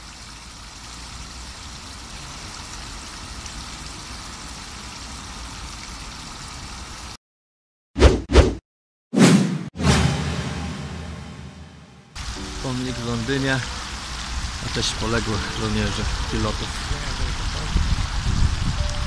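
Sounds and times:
fountain jets splashing: 0.0 - 7.2, 12.2 - 19.0
short hit sound effects: 9.2 - 12.2.

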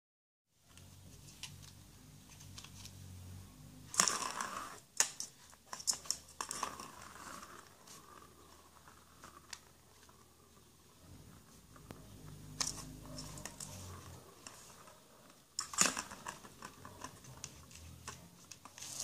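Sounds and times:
plastic ball rolling around track: 3.8 - 19.0.

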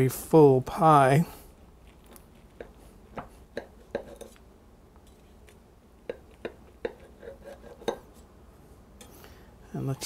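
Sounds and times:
knife cutting through pastry crust: 6.1 - 8.3.

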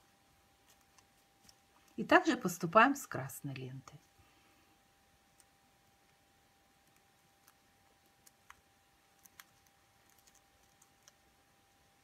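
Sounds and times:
faint clicks of needle and thread: 0.6 - 2.0.

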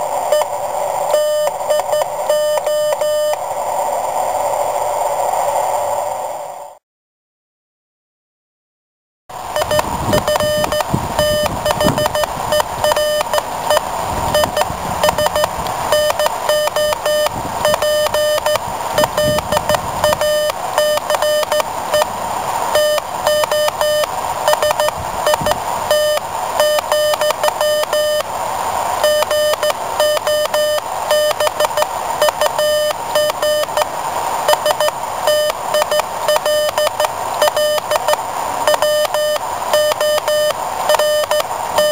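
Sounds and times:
morse code beeps: 1.1 - 3.4, 9.6 - 22.1, 22.7 - 28.3, 29.0 - 33.9, 34.5 - 41.9.

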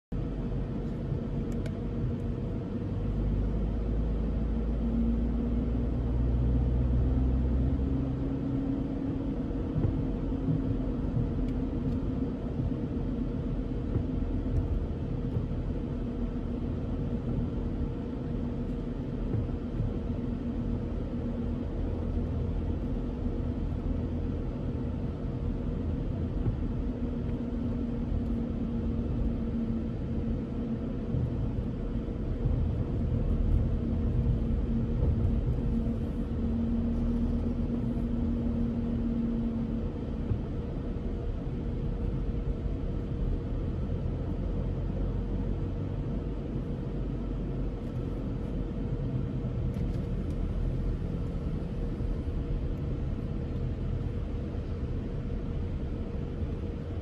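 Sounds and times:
car road noise rumble: 0.1 - 57.0.

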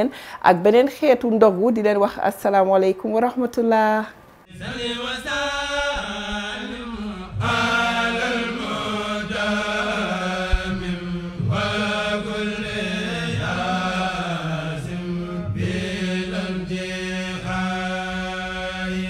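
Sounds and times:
chanting voice: 4.5 - 19.0.

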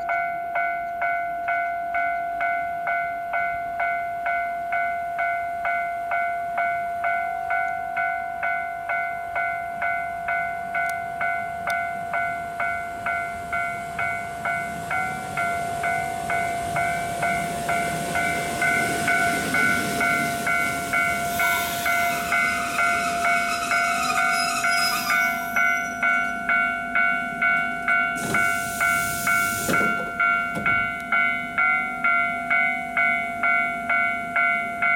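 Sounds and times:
level crossing warning bell: 0.0 - 34.9
electric train running: 11.6 - 31.3
train brakes squealing: 14.8 - 26.7, 28.2 - 31.0
compressed air hiss: 28.2 - 30.0.

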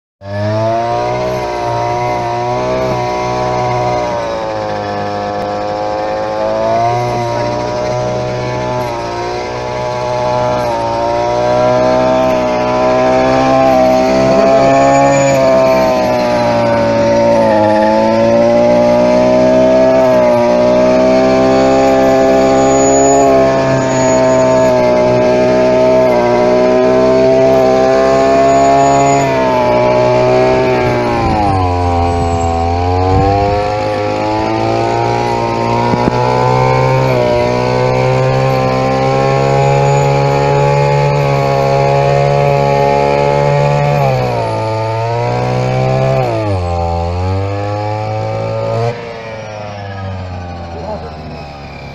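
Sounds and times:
brush cutter engine cutting grass: 0.2 - 51.9.

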